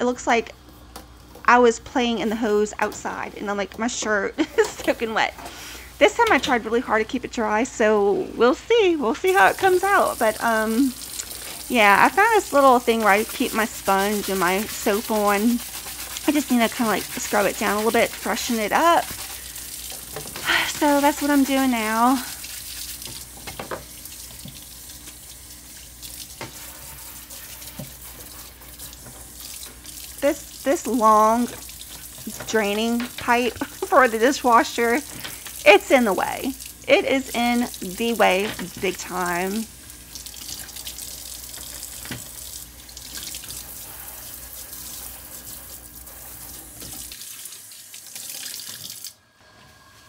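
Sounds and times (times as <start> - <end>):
dish brush scrubbing plastic: 0.1 - 49.0
faucet running into metal sink: 9.3 - 49.2.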